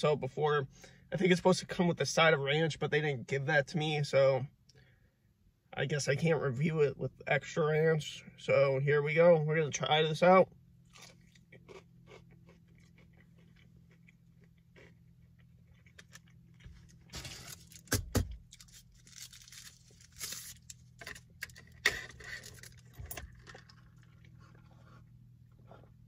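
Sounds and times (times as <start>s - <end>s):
chewing crispy food: 10.8s - 17.8s, 18.5s - 26.0s
paper packaging rustling: 18.5s - 21.3s.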